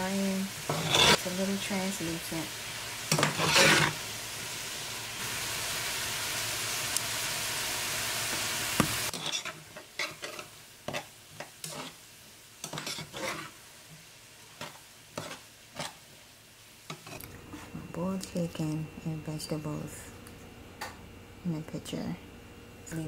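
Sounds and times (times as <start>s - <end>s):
vegetables sizzling in skillet: 0.0s - 17.3s
spoon scraping and stirring in pan: 0.6s - 1.2s, 3.1s - 4.0s, 9.1s - 12.0s, 12.6s - 13.6s, 14.5s - 16.1s, 16.9s - 17.3s.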